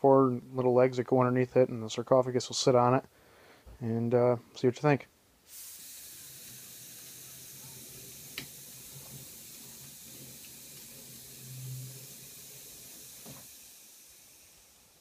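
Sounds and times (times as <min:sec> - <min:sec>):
compressed air hissing: 0:05.4 - 0:15.0.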